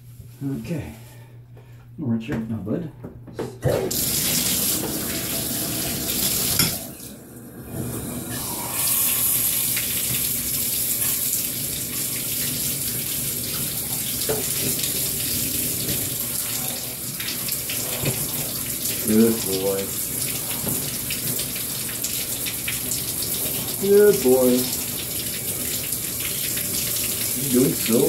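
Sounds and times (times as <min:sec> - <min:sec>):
water pouring into bathtub: 0:03.8 - 0:28.0.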